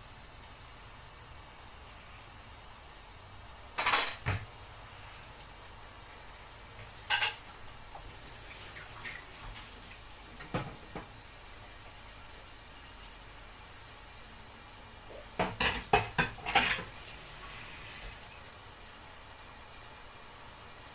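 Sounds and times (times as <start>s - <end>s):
faint steady hiss: 0.0s - 20.9s
dishes and utensils clinking: 7.0s - 7.4s, 15.4s - 16.9s.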